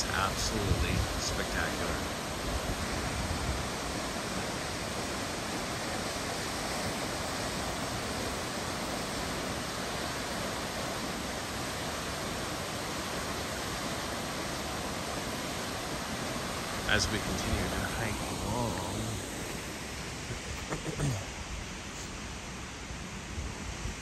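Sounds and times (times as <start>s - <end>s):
waterfall rushing: 0.0s - 23.7s.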